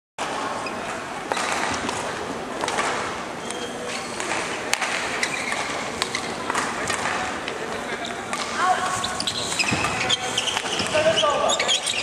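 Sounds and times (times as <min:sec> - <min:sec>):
murmur of voices: 0:00.2 - 0:12.0
rackets hitting shuttlecock: 0:01.3 - 0:03.1, 0:04.2 - 0:07.6, 0:08.2 - 0:11.1.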